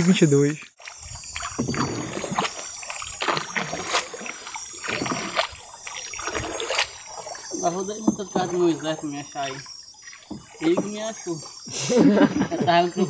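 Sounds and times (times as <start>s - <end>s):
paddle splashing in water: 0.7s - 12.0s
paddle knocking against hull: 1.3s - 8.8s, 10.1s - 11.1s.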